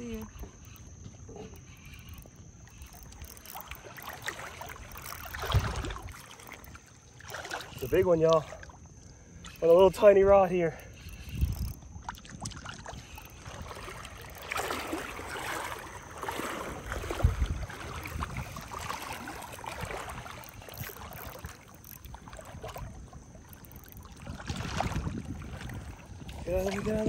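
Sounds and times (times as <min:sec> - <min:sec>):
water sloshing and splashing: 0:00.0 - 0:27.0.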